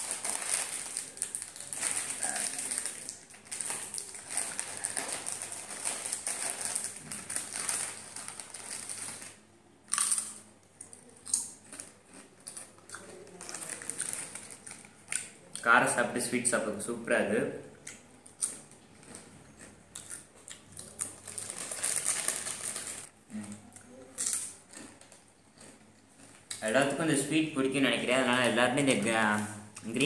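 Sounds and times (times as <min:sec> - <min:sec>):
plastic chip packet crinkling: 0:00.0 - 0:10.4, 0:11.4 - 0:15.3, 0:20.8 - 0:23.1
chips being bitten: 0:09.9 - 0:15.3, 0:24.2 - 0:26.6.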